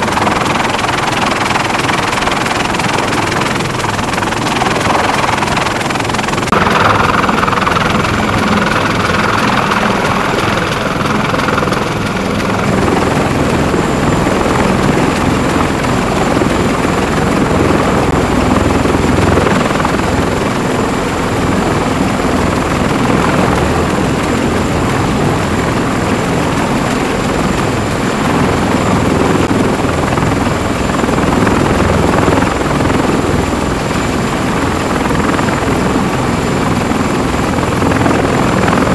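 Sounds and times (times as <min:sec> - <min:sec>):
helicopter rotor and engines: 0:00.0 - 0:38.9.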